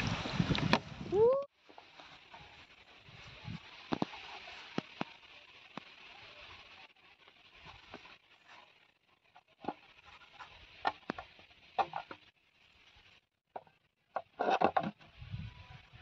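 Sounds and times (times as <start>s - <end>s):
plastic bottle crackling: 1.6s - 6.2s.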